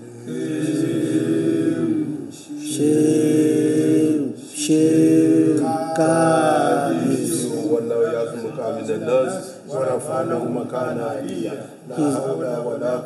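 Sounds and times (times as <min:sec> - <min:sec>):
man chanting: 0:03.8 - 0:13.0.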